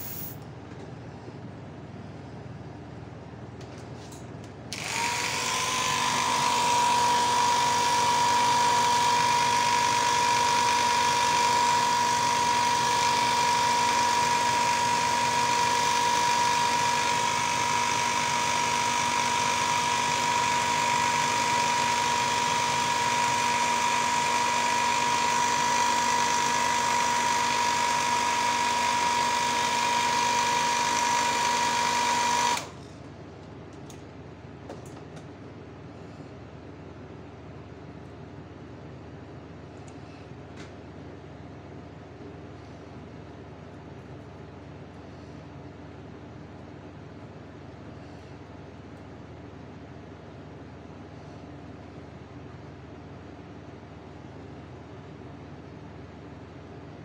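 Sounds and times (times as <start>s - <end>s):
air compressor whining: 4.7s - 32.8s.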